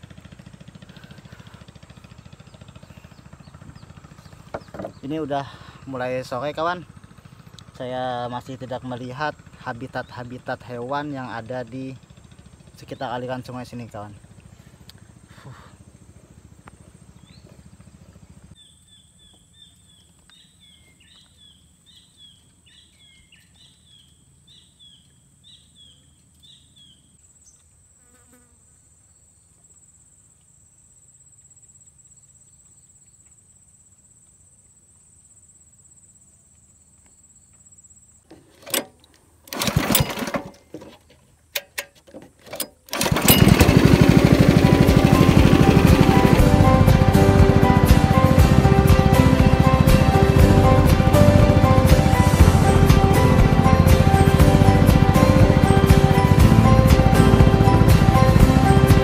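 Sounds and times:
small boat engine: 0.0 - 18.6, 38.3 - 59.0.

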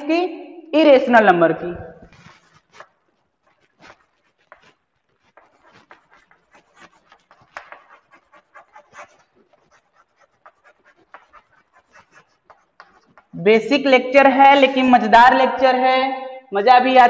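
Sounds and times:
chalk scratching on blackboard: 2.1 - 13.4.

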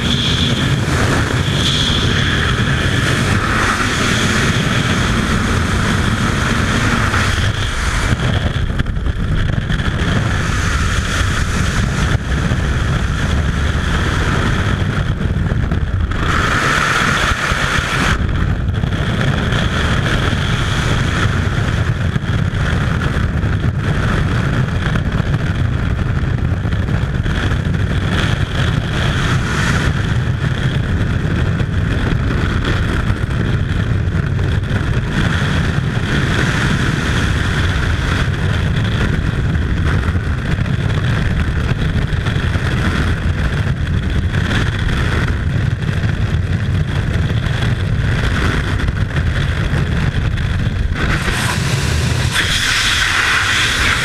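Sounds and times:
freefall wind rushing: 0.0 - 54.0.

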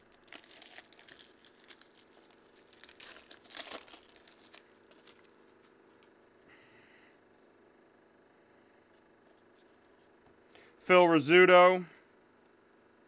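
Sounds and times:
foil wrapper crinkling and tearing: 0.0 - 6.4.

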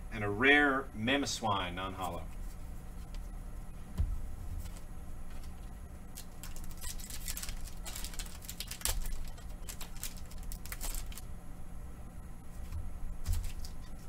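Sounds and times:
foil wrapper crinkling: 5.4 - 11.3, 13.3 - 14.0.

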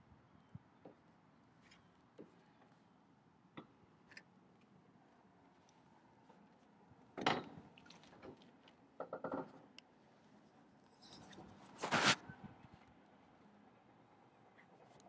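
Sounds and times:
faint background noise: 0.0 - 15.0
scraping and rubbing sounds: 11.0 - 12.2.

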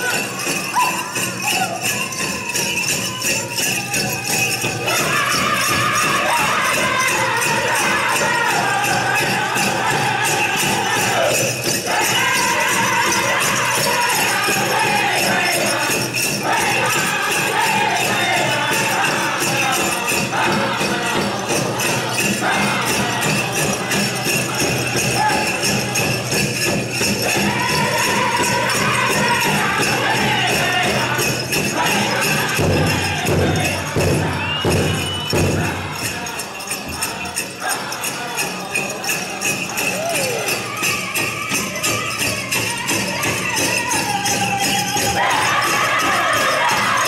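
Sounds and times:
bells jingling: 0.0 - 47.0
group singing: 0.0 - 47.0
big drum beat: 2.1 - 37.3.

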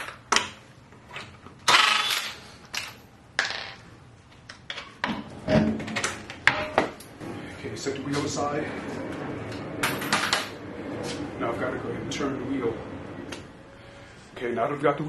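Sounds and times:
impact wrench bursts: 1.6 - 2.6.

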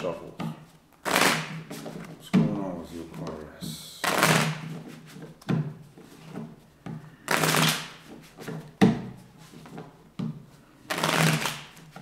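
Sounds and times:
cards being riffle-shuffled: 1.0 - 2.2, 4.0 - 5.3, 7.3 - 8.7, 10.9 - 12.0.

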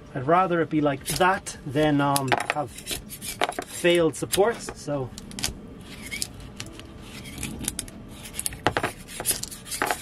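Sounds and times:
metal scraper scraping plate: 2.2 - 4.7, 7.0 - 10.0.

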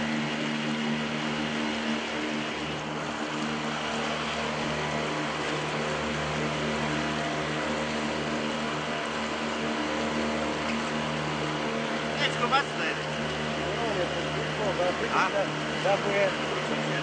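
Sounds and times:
small boat motor running: 0.0 - 17.0
water rushing against hull: 0.0 - 17.0.

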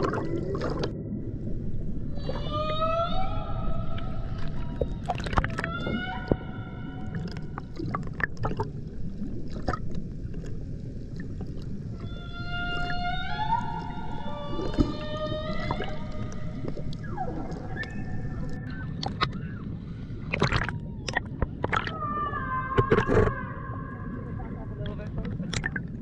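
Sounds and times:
low water noise: 0.0 - 26.0
whale song calls underwater: 2.0 - 8.2, 11.9 - 24.4.

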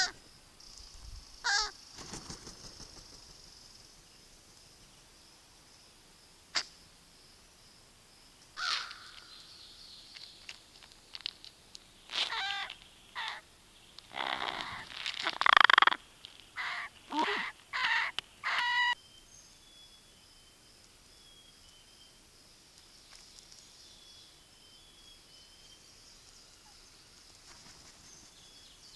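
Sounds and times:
crows cawing: 1.4 - 1.8, 8.6 - 9.3, 12.2 - 13.4, 16.6 - 19.0.

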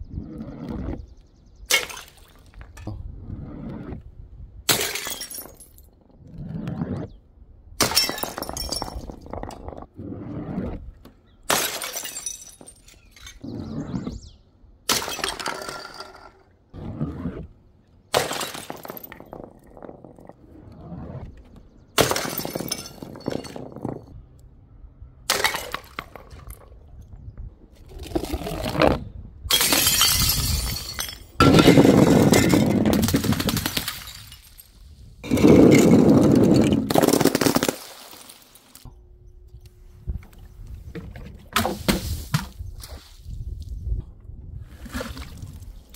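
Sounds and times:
glass bottles shattering: 1.7 - 2.4, 4.7 - 5.9, 7.8 - 9.7, 11.5 - 13.4, 14.9 - 16.4, 18.2 - 19.6, 22.0 - 24.1, 29.5 - 38.6.

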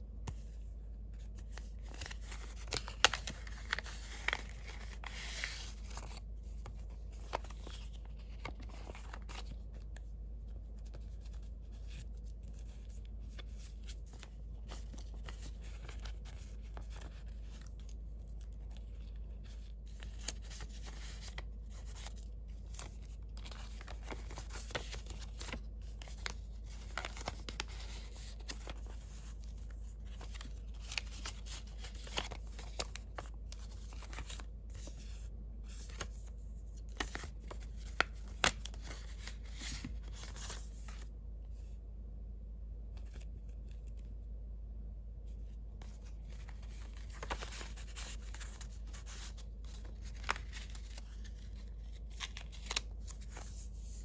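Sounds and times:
paper rustling: 0.3 - 41.1, 45.8 - 54.0.

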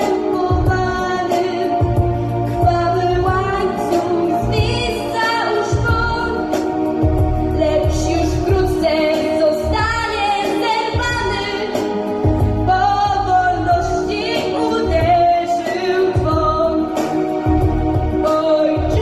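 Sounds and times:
instrumental backing track: 0.0 - 19.0
girl singing into microphone: 2.6 - 6.4, 7.6 - 11.8.

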